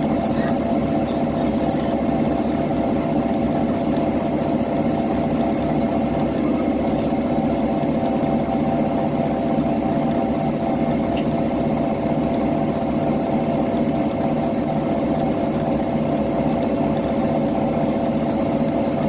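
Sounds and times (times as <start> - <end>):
bus diesel engine droning: 0.0 - 19.0.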